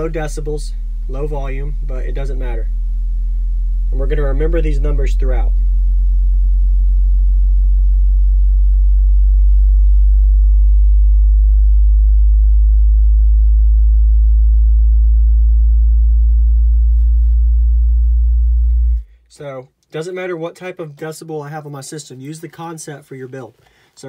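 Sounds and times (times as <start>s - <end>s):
low bass test tone rising in pitch: 0.0s - 19.2s.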